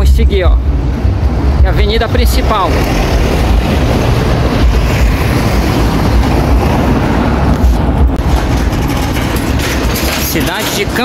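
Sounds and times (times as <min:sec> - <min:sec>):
wind buffeting microphone: 0:00.0 - 0:11.0
bicycle rolling over paving blocks: 0:08.2 - 0:11.0.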